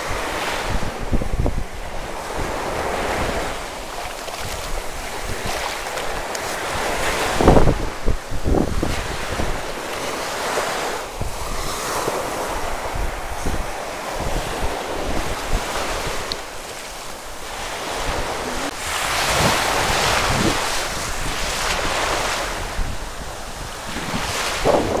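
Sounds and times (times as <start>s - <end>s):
waves breaking on shore: 0.0s - 25.0s
wind buffeting microphone: 0.0s - 25.0s.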